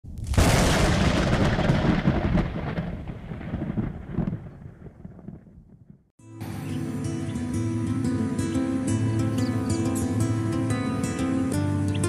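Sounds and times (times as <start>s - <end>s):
boom with rumble: 0.0s - 6.1s.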